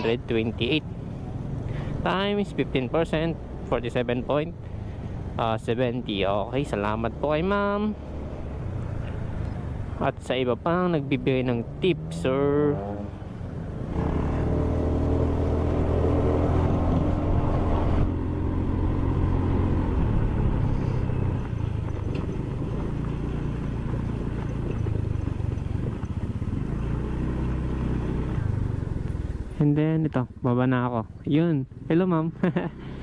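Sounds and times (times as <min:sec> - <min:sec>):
motor scooter engine running: 0:20.2 - 0:29.3.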